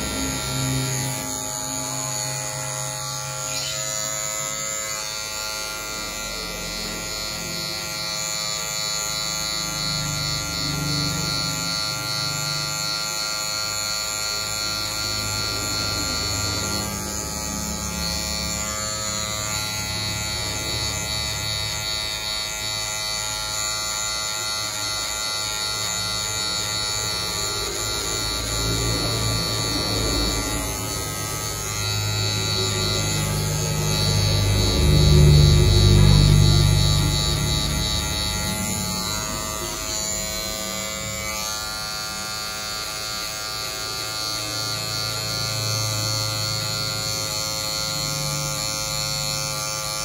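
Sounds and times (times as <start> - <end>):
electric hair clippers buzzing: 0.0 - 50.0.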